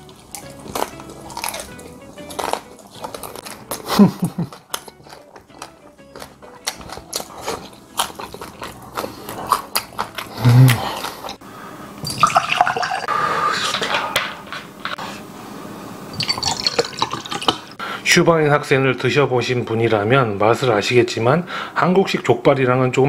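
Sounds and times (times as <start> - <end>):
chewing: 0.0 - 11.4
liquid pouring into a glass: 12.0 - 13.1, 16.1 - 17.7.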